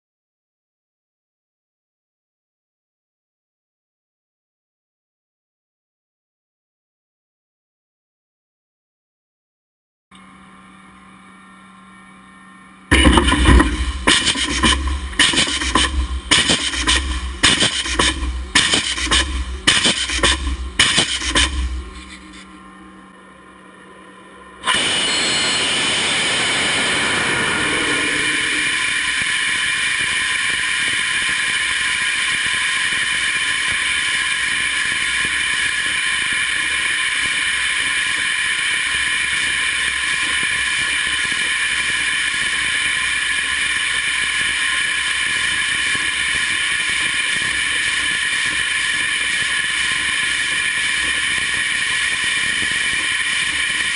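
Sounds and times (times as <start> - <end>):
rocket engine roar: 12.9 - 53.9.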